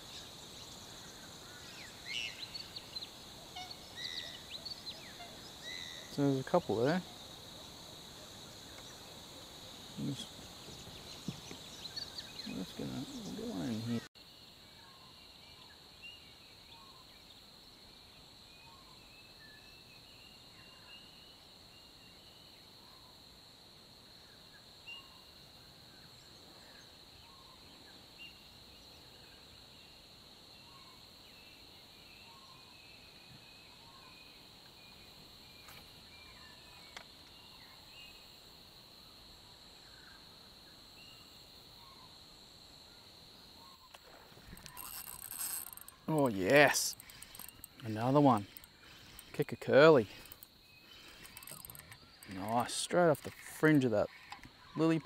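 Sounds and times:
high-pitched insect drone: 0.0s - 14.1s, 43.6s - 55.0s.

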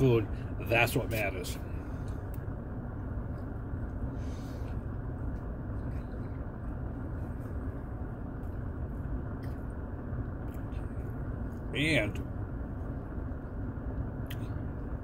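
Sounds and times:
person chewing: 8.2s - 11.5s.

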